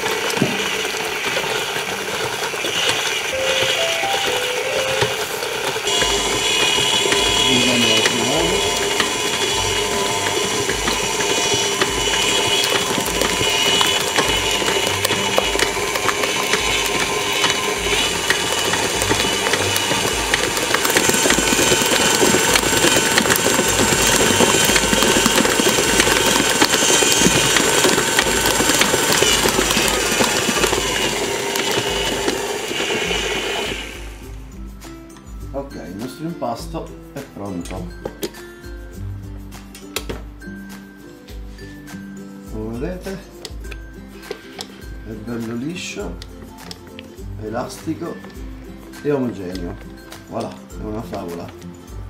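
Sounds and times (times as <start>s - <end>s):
stand mixer running: 0.0s - 34.5s.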